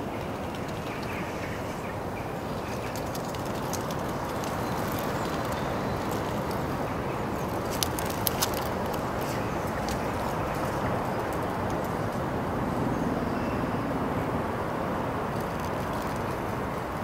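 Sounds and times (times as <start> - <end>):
city background rush: 0.0 - 17.0.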